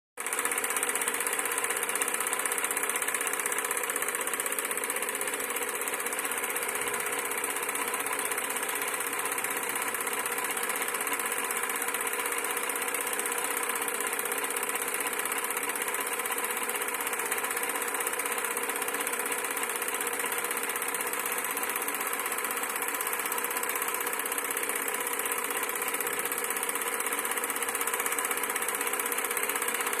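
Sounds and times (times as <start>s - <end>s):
film projector whirring: 0.2s - 30.0s.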